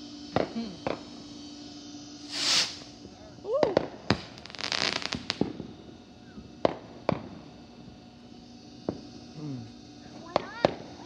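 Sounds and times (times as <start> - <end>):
fireworks crackling: 0.0 - 9.2, 10.0 - 11.0
fireworks bangs: 2.3 - 5.8.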